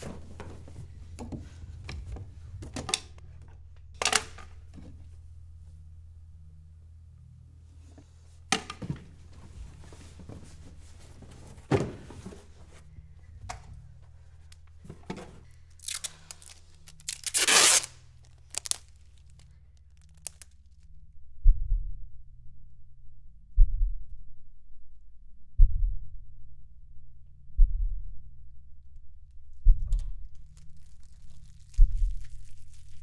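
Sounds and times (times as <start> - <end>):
steady low drone: 0.0 - 33.0
ripping sound: 15.8 - 18.9.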